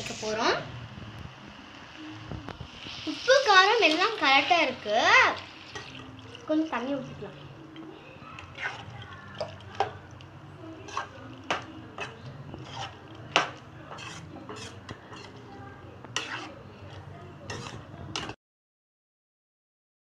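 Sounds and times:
stirring wet gravy: 2.7s - 18.4s
spoon scraping metal pan: 5.6s - 6.2s, 8.4s - 10.0s, 10.6s - 18.4s.

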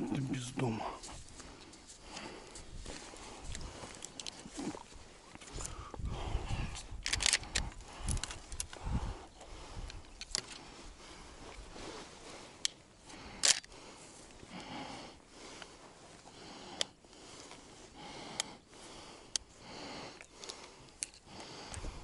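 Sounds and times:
sharp clicks: 7.0s - 8.8s.

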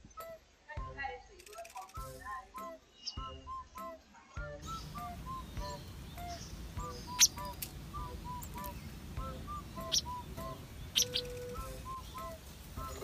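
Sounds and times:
soft background music: 0.0s - 13.0s
bird chirping: 2.9s - 3.8s, 4.6s - 13.0s.

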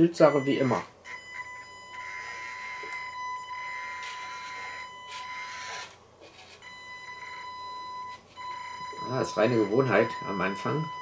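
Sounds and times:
electric motor whine: 1.1s - 7.6s.

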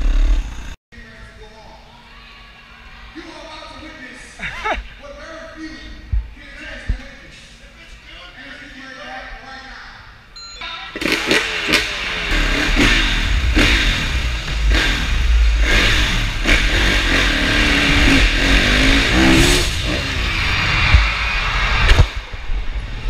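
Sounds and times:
dirt bike engine revving: 0.0s - 0.8s, 11.0s - 22.2s.

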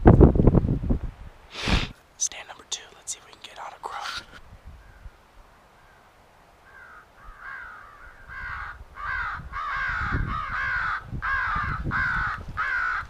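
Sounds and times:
crow call harsh caws: 6.6s - 13.0s.

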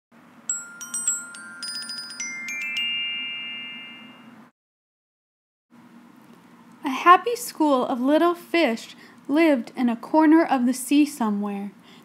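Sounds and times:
bell-like chime notes: 0.5s - 4.5s.

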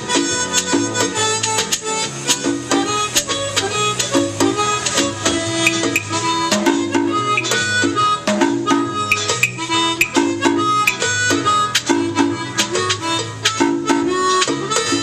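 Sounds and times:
percussion hits: 5.7s - 8.0s, 9.1s - 11.1s.

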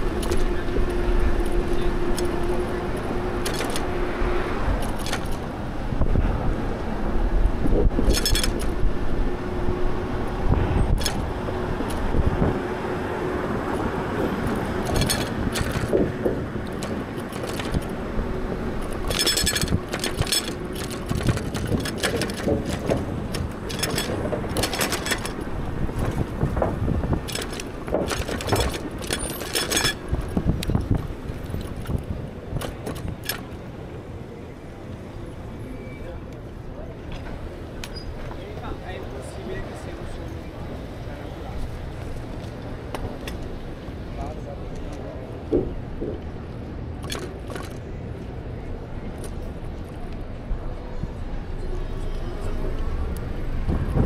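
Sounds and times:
bike rattling over bumps: 0.0s - 6.2s, 7.4s - 12.8s, 13.4s - 33.7s
road and wind noise: 0.0s - 54.0s.

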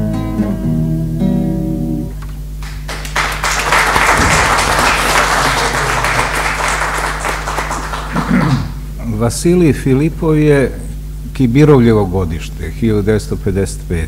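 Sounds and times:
song with guitar: 0.0s - 2.3s
audience applauding: 2.6s - 8.8s
low hum: 2.6s - 9.4s.

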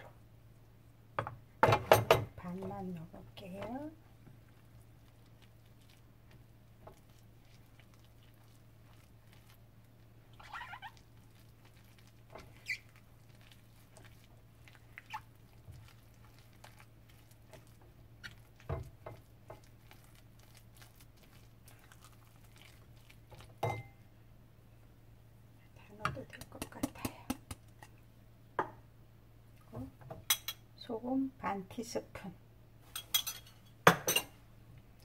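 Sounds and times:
spoon stirring batter in bowl: 1.8s - 24.0s, 25.9s - 28.0s.

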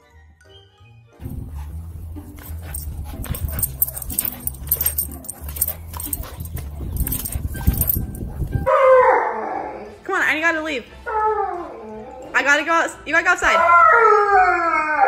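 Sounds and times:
clicks and rustles: 2.3s - 8.7s
dog vocalising: 2.3s - 8.7s.

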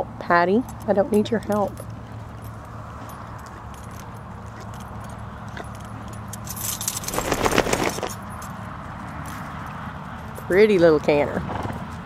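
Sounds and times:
light metallic jangling: 0.6s - 8.6s.

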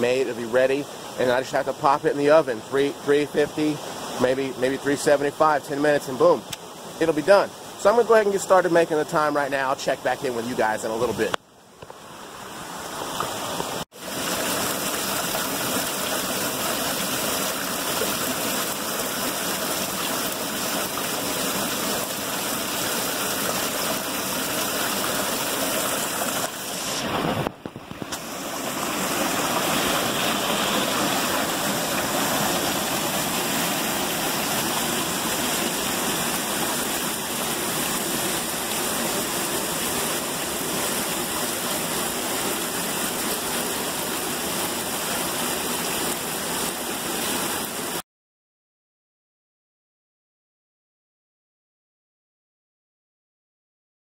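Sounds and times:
waterfall rushing: 12.6s - 48.0s.

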